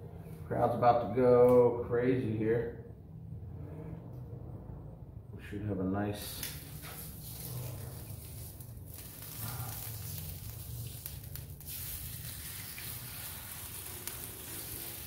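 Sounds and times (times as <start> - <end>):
chicken sizzling on griddle: 6.8 - 15.0.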